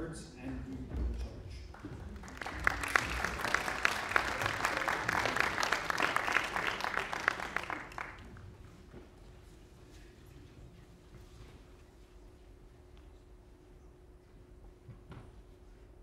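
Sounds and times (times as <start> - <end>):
audience applauding: 1.7 - 8.4.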